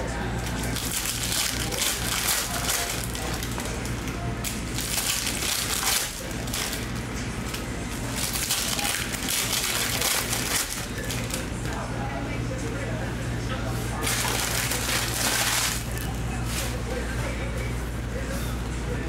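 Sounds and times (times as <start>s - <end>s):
foil wrappers crinkling: 0.4s - 11.8s, 14.0s - 17.1s.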